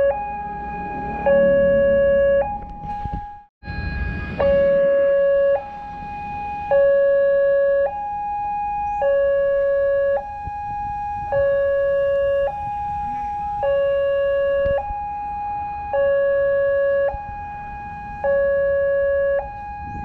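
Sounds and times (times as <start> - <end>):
two-tone crossing alarm: 0.0 - 20.0.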